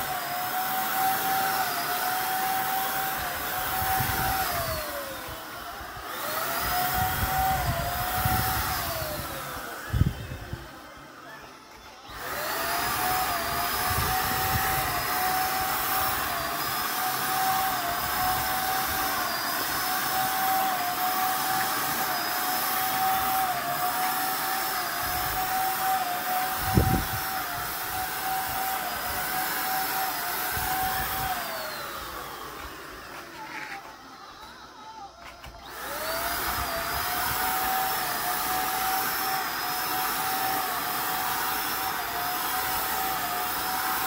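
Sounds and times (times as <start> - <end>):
paint spray gun whining and hissing: 0.0 - 44.0.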